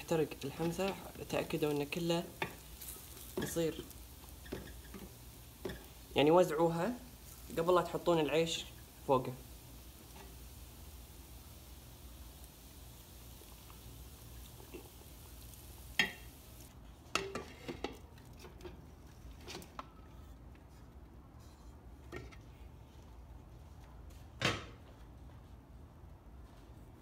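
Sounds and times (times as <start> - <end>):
faint steady hiss: 0.0 - 23.8
metal pots clanking and knocking: 16.0 - 16.3, 17.1 - 18.8.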